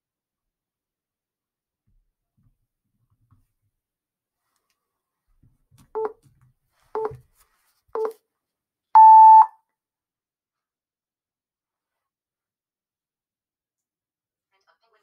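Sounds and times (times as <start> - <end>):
short timer beeps: 8.0 - 8.2, 9.0 - 9.5
long high timer beep: 9.0 - 9.5.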